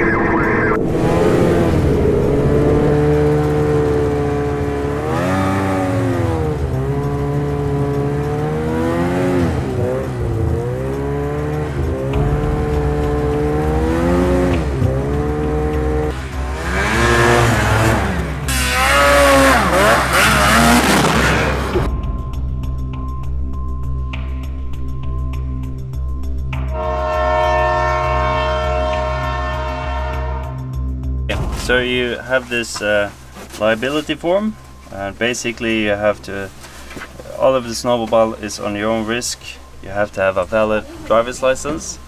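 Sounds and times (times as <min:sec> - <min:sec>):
snowmobile engines revving: 0:00.0 - 0:21.9, 0:37.3 - 0:42.0.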